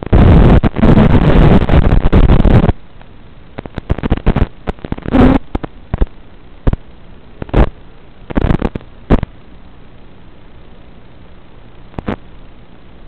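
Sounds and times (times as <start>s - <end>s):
loud crackling pops: 0.0s - 9.4s, 11.9s - 12.2s
static hiss: 0.0s - 13.0s.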